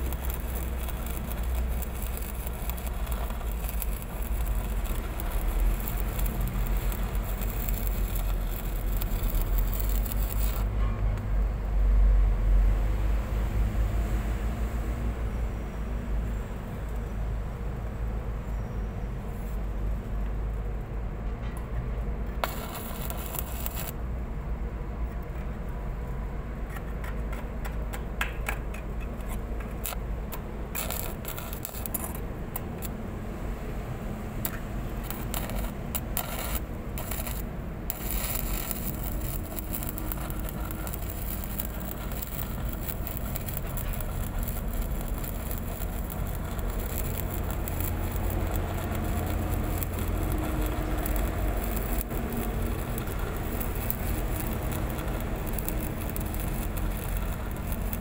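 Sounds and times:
arc welding crackling hiss: 0:00.0 - 0:11.3, 0:22.4 - 0:24.1, 0:29.6 - 0:58.0
low engine rumble: 0:00.0 - 0:12.9, 0:27.2 - 0:58.0.

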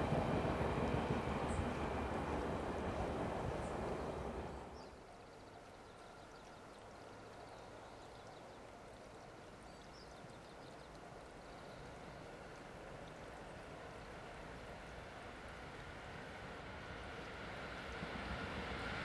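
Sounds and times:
electric train departing: 0:00.0 - 0:04.8, 0:14.0 - 0:19.0.

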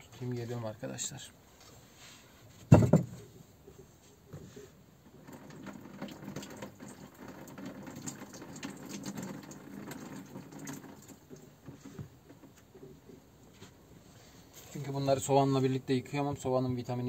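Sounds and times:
tap water running: 0:05.0 - 0:12.8.

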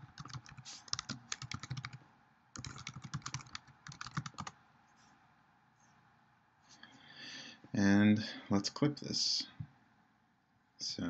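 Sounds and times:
typing on computer keyboard: 0:00.0 - 0:02.0, 0:02.6 - 0:04.6.

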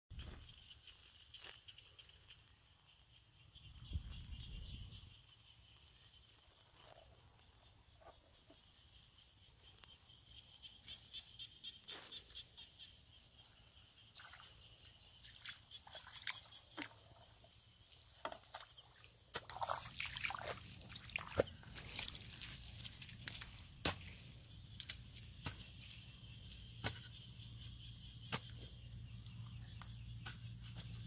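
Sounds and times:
bare feet splashing through mud: 0:15.2 - 0:17.0, 0:18.4 - 0:26.1.

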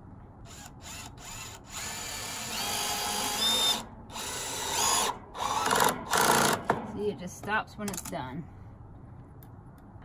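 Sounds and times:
cordless drill driving screw: 0:00.5 - 0:06.6.

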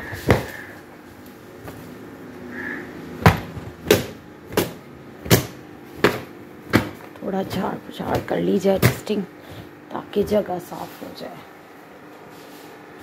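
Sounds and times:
cloth being slapped: 0:03.2 - 0:07.0.

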